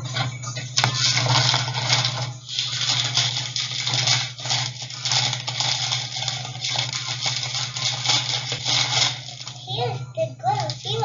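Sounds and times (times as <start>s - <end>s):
plastic packaging crinkling: 0.0s - 11.0s
steady low hum: 0.0s - 11.0s.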